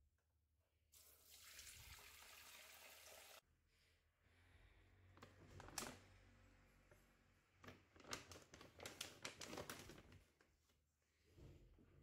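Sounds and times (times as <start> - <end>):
kibble bag rustling and crinkling: 7.9 - 10.2.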